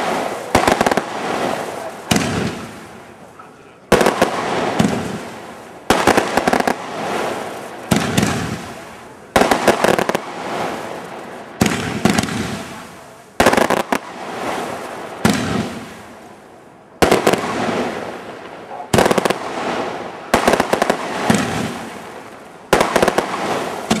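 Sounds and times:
fireworks bangs: 0:00.0 - 0:24.0
fireworks crackling hiss: 0:00.0 - 0:24.0.

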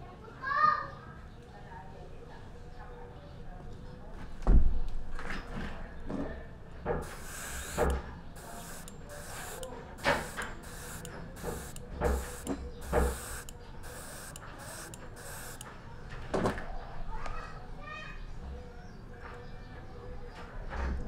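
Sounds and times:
airbrush hissing bursts: 0:07.0 - 0:15.7.

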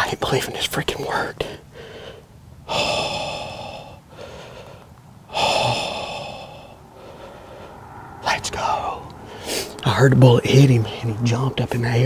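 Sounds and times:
man breathing heavily: 0:01.4 - 0:09.8.

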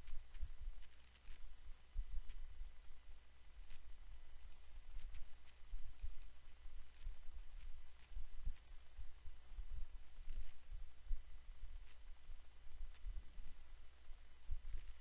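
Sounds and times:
mouse and keyboard clicks: 0:00.0 - 0:01.4, 0:04.4 - 0:09.0, 0:09.8 - 0:10.6
low steady rumble: 0:00.0 - 0:15.0.

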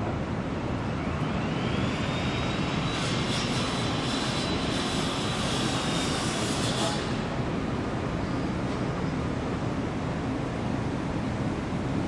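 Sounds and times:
machine rushing with high whine: 0:00.8 - 0:07.3.

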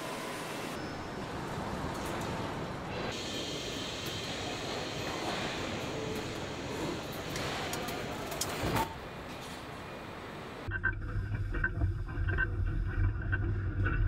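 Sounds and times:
machinery noise: 0:00.0 - 0:10.7
low hum: 0:10.7 - 0:14.0.

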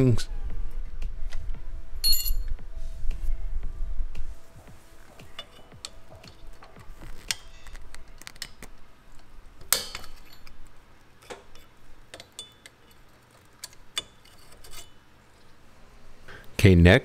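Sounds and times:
metal springs clicking and clinking: 0:05.2 - 0:15.5.

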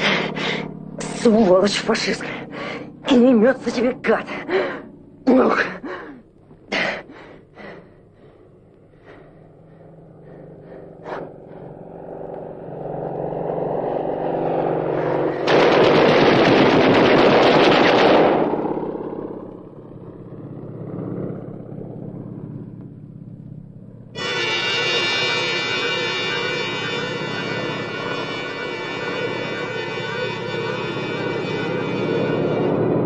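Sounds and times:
propeller aircraft engine drone: 0:00.0 - 0:33.0
machine-gun fire: 0:15.4 - 0:18.9.

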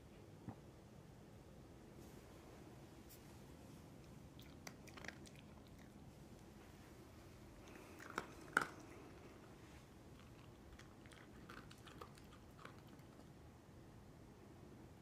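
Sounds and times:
dog crunching dry kibble: 0:04.4 - 0:06.0, 0:07.6 - 0:13.3.

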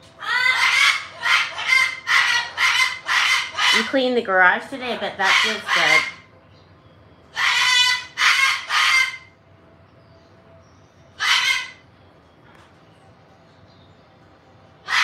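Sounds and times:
parrot calling loudly: 0:00.2 - 0:04.2, 0:04.8 - 0:06.3, 0:07.3 - 0:09.3, 0:11.2 - 0:11.8.

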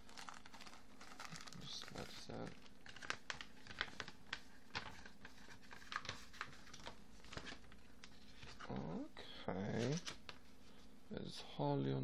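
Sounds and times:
paper and plastic wrapper rustling: 0:00.0 - 0:09.0.

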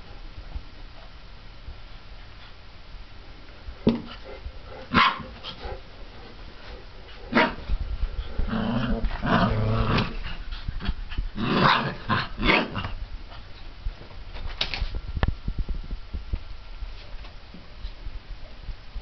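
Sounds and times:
puppy growling: 0:07.2 - 0:13.0.

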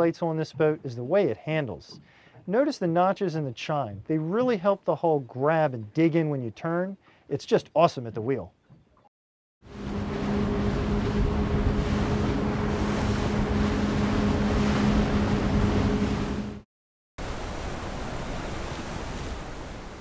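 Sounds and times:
boat engine drone: 0:09.6 - 0:16.6
water and wind rushing: 0:09.6 - 0:16.6, 0:17.2 - 0:20.0.

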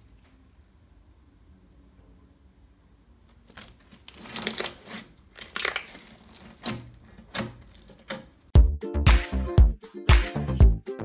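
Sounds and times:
slime squelching: 0:03.3 - 0:08.2.

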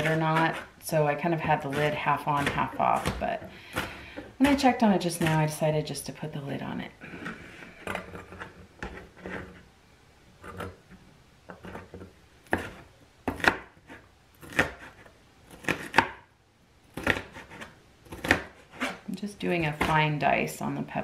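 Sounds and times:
knife chopping on cutting board: 0:01.4 - 0:05.4, 0:11.6 - 0:16.2, 0:17.0 - 0:19.0.

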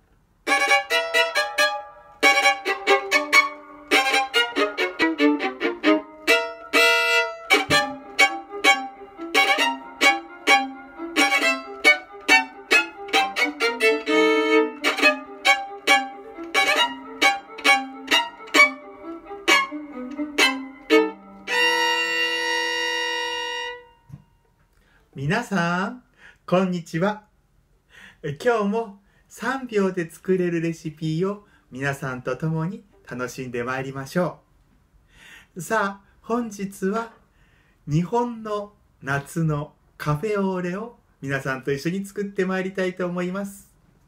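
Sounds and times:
solo violin lively tune: 0:00.4 - 0:24.2.

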